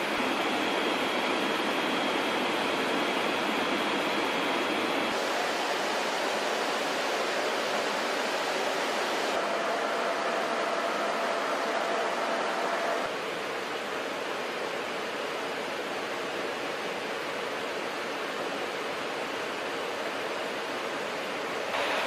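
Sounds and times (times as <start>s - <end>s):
aircraft cockpit engine and airflow noise: 0.0s - 22.0s.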